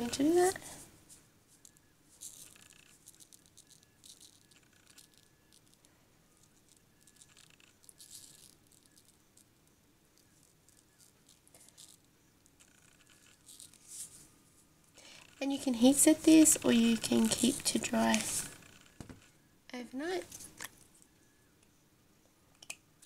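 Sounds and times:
salt grains pattering on paper: 1.5 - 14.2, 15.6 - 19.0.

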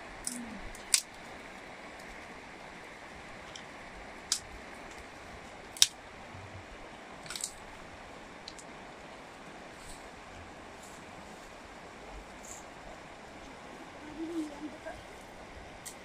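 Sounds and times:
river rushing: 0.0 - 16.0
twigs snapping: 0.2 - 1.2, 3.5 - 5.1, 5.7 - 6.0, 7.2 - 7.6.

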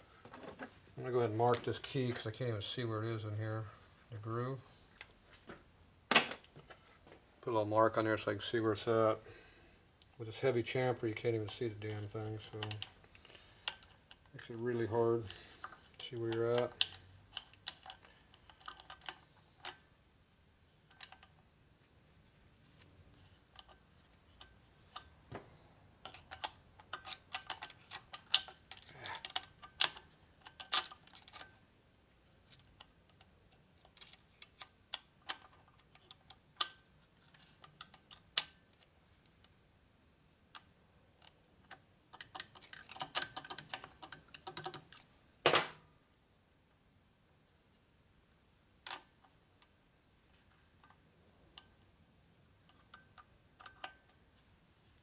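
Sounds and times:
metal parts clicking: 12.4 - 13.0, 15.6 - 19.8, 26.0 - 31.6, 40.5 - 45.1.

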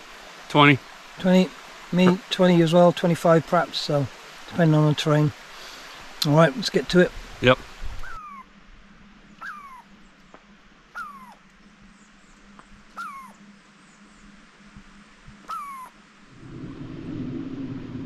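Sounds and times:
animal calling with falling pitch: 8.0 - 8.5, 9.4 - 10.0, 10.9 - 11.5, 12.9 - 13.5, 15.4 - 16.0
low rushing sound: 16.3 - 18.0.

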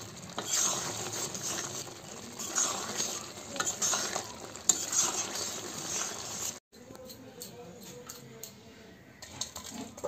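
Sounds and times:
low frying sizzle: 0.0 - 6.7
metal spatula scraping a pan: 0.0 - 10.0.

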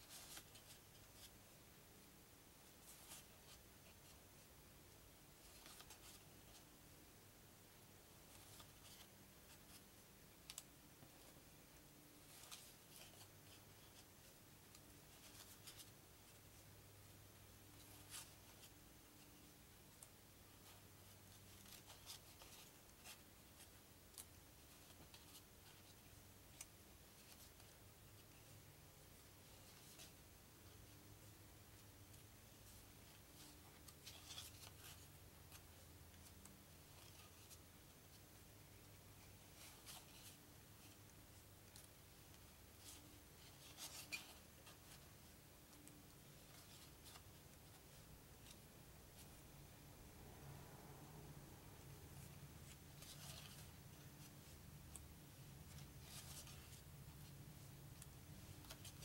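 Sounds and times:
faint low hum: 0.0 - 59.0
cardboard cards sliding and ticking: 52.2 - 59.0.

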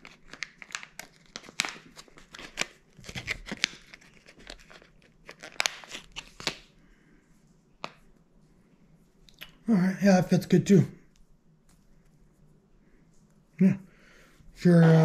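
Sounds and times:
plastic packet crinkling and tearing: 0.0 - 6.7.

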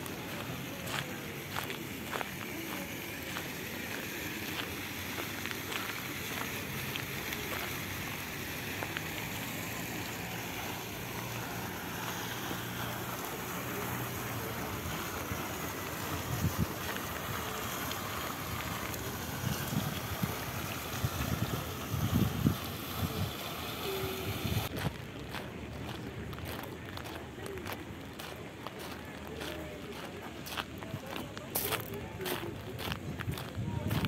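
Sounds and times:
fountain jet splashing into basin: 0.0 - 24.7
wind buffeting microphone: 19.1 - 23.4, 32.8 - 34.0.

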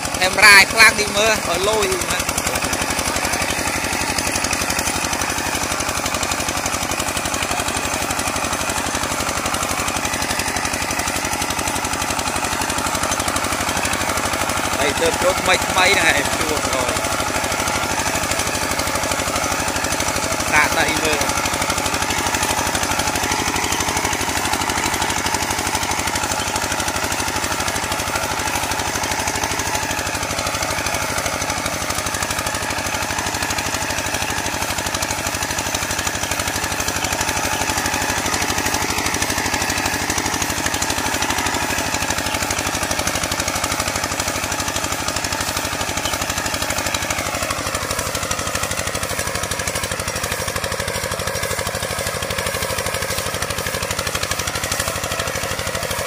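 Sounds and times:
diesel engine chugging: 0.0 - 56.0.

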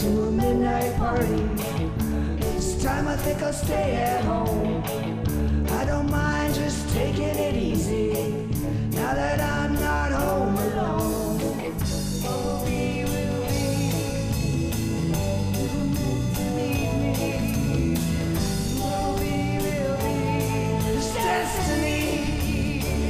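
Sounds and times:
drum kit beat: 0.0 - 23.0
bending melodic lead line: 10.4 - 23.0.

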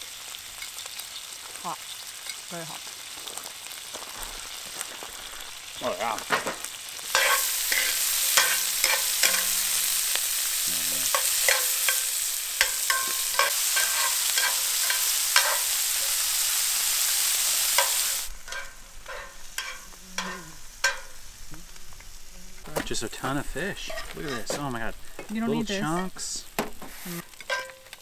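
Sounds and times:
hot oil sizzling in a skillet: 0.0 - 28.0
metal tongs clicking and scraping: 7.1 - 9.8, 11.1 - 16.1, 17.8 - 21.1, 27.3 - 28.0.

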